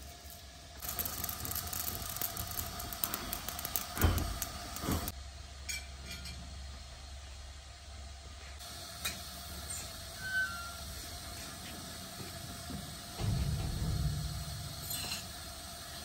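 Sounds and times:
paper burning and crackling: 0.0s - 5.2s.

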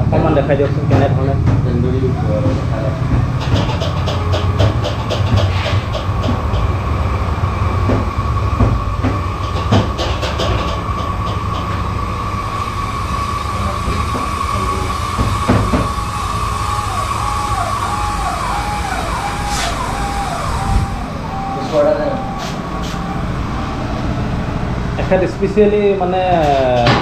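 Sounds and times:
gas grill humming with high whine: 0.0s - 27.0s
clicks and clatter: 3.1s - 6.8s.

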